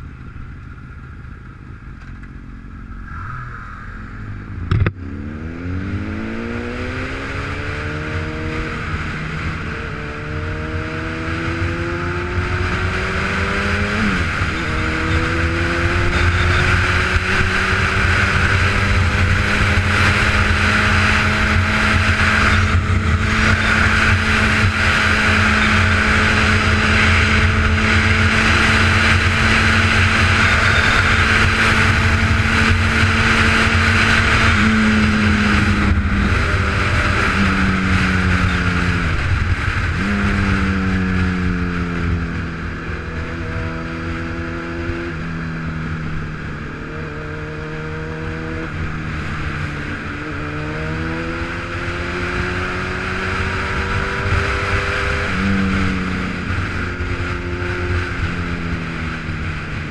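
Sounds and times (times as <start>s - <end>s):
vehicle engine accelerating: 0.0s - 59.9s
wind noise: 0.0s - 59.9s
sharp knock: 4.6s - 5.0s.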